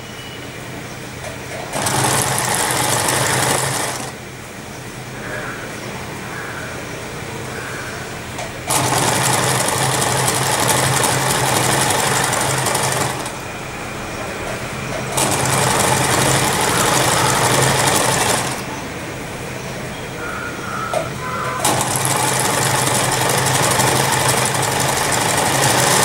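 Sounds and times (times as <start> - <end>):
electric sewing machine running: 1.6 - 4.2, 8.6 - 13.8, 14.5 - 18.8, 21.3 - 26.0.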